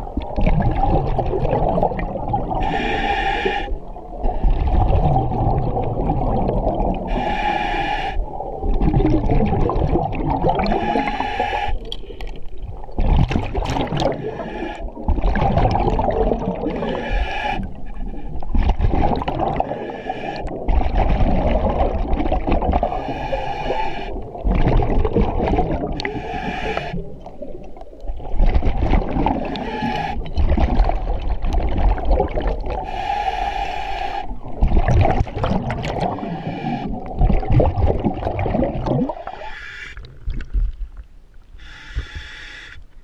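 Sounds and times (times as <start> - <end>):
gurgling exhaled bubbles: 0.0 - 2.8, 3.9 - 7.4, 8.2 - 11.9, 12.6 - 32.9, 34.3 - 40.8
regulator hissing inhale: 2.6 - 3.8, 7.1 - 8.2, 10.6 - 12.4, 14.1 - 15.0, 16.7 - 18.4, 19.7 - 20.6, 22.9 - 24.2, 26.0 - 27.1, 29.5 - 30.3, 32.8 - 34.4, 36.1 - 37.0, 39.3 - 40.0, 41.6 - 42.8.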